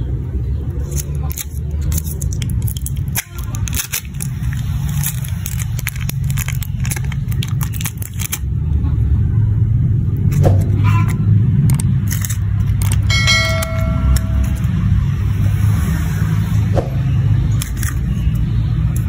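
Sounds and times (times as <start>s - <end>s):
foil lid crinkling: 1.3s - 8.4s
low rumble: 13.1s - 16.1s.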